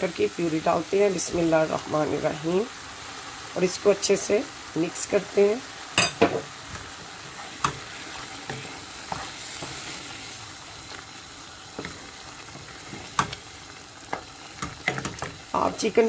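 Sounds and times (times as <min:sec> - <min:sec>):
food sizzling in a pan: 0:00.0 - 0:16.0
wooden spoon stirring: 0:06.5 - 0:15.4.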